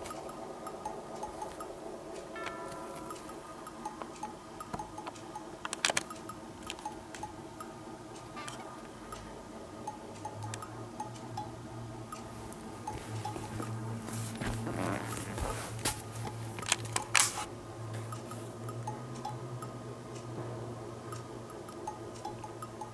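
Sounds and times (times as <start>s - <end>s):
light plinking tune: 0.0s - 15.4s, 18.1s - 20.4s
ticking percussion: 0.0s - 17.3s, 21.1s - 22.9s.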